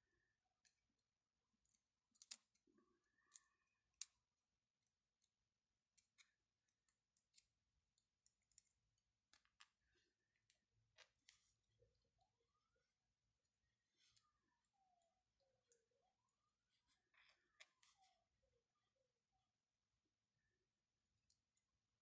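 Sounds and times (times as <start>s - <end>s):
tweezers clicking on plastic: 1.6s - 9.7s.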